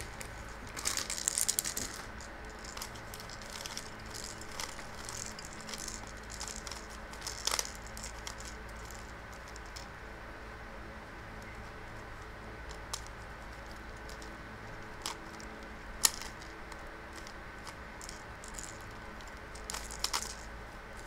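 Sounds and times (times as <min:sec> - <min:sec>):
plastic wrap crinkling: 0:00.0 - 0:09.6
puzzle cube clicking: 0:00.0 - 0:09.9, 0:14.9 - 0:20.4.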